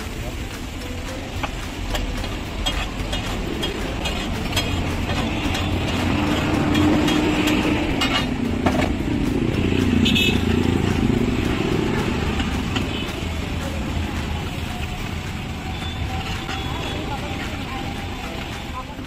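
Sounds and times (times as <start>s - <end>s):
vehicle engines running: 0.0s - 19.0s.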